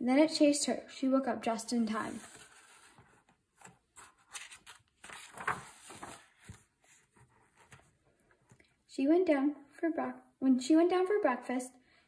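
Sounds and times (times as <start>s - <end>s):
book pages rustling: 1.8s - 8.7s.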